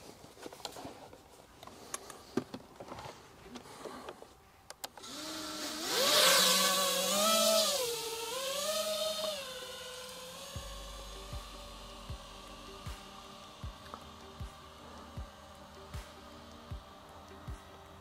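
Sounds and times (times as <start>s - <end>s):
drone motors whining: 5.0s - 18.0s.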